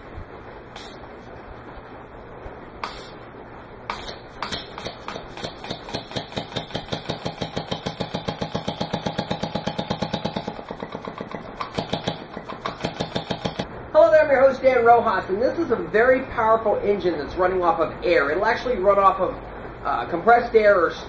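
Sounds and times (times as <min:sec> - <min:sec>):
air-powered engine chuffing: 0:00.0 - 0:13.7.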